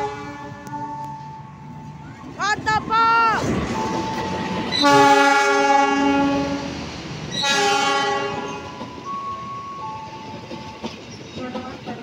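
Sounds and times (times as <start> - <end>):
locomotive air horn blast: 0.0 - 1.0, 4.7 - 8.6
train rumbling past: 0.0 - 12.0.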